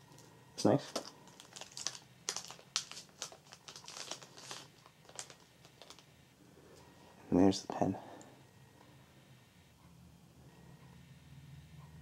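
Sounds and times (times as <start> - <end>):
plastic sleeve crinkling: 0.8 - 6.1.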